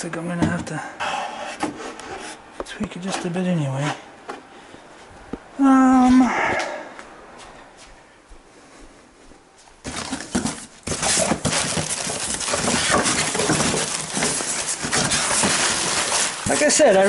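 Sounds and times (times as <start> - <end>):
bubble wrap and styrofoam crackling: 9.8 - 17.0
scrapes in cardboard box: 9.9 - 17.0.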